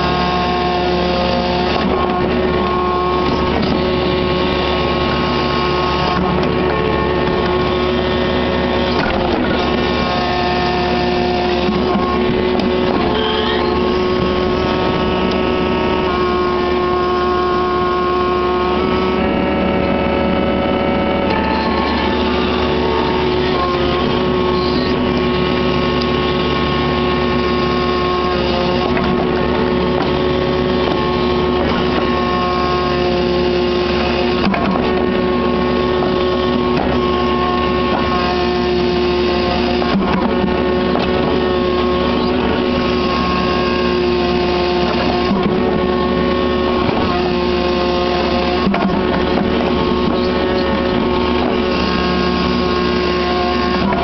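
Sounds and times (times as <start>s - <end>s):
diesel excavator engine running: 0.0s - 54.0s
hydraulic whining tones: 0.0s - 54.0s.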